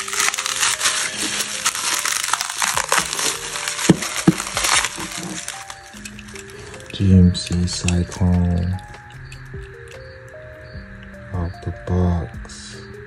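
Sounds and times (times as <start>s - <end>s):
bubble wrap snapping: 0.0s - 10.4s
bubble wrap crinkling: 0.0s - 11.3s.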